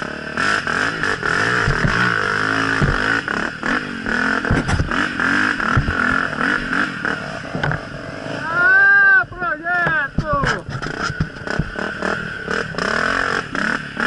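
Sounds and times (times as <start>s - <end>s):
dirt bike engine revving: 0.0s - 14.0s
bike knocking and clattering: 1.3s - 6.6s, 9.3s - 11.9s.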